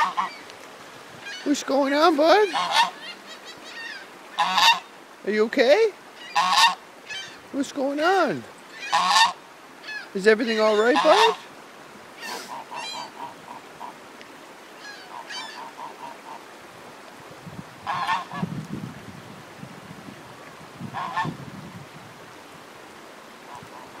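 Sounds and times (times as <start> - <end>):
goose honking: 0.0 - 0.4, 2.4 - 4.9, 6.2 - 7.3, 8.8 - 11.4, 17.8 - 18.4, 21.0 - 21.4.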